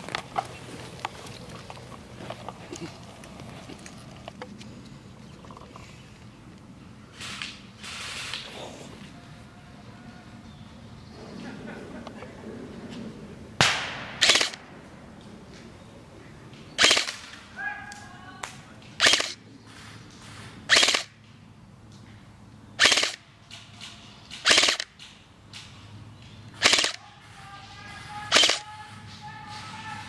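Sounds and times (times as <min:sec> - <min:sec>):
airsoft rifle shots: 0:13.6 - 0:14.7, 0:16.8 - 0:17.5, 0:19.0 - 0:19.4, 0:20.7 - 0:21.2, 0:22.8 - 0:25.0, 0:26.6 - 0:30.0.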